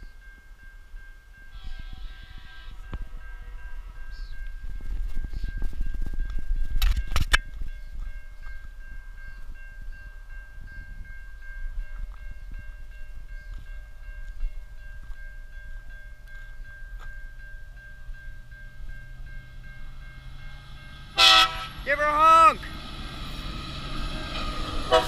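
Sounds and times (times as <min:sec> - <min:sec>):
level crossing warning bells: 0:00.0 - 0:06.8, 0:07.5 - 0:25.0
wind rumbling on microphone: 0:00.9 - 0:20.0.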